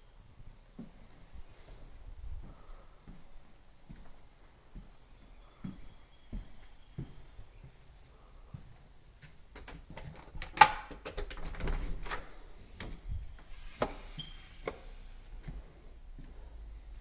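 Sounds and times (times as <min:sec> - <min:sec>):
door unlatching clicks and knocks: 0:09.6 - 0:12.4.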